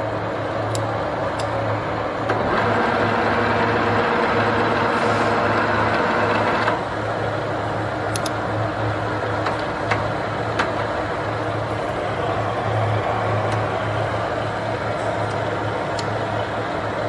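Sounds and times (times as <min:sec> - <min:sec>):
boring mill humming: 0:00.0 - 0:17.0
sharp clicks: 0:08.1 - 0:08.4.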